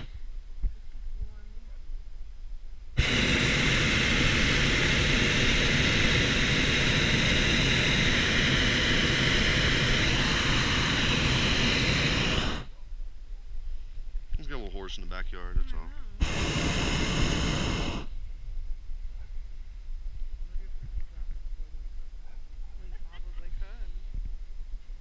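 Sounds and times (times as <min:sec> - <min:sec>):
propane burner blast: 0:00.0 - 0:00.2, 0:02.9 - 0:12.8, 0:14.4 - 0:18.3.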